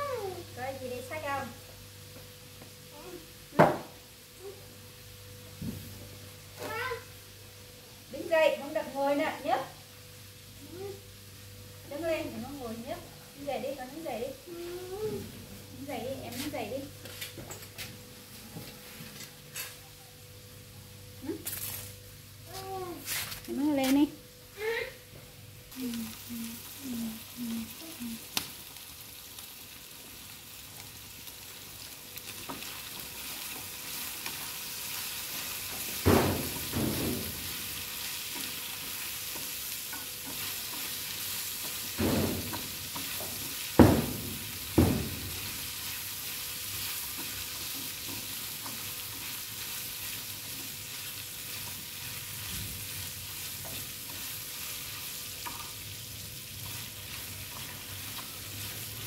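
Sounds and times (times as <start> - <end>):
meat sizzling in a pan: 0.0 - 17.2, 25.6 - 59.0.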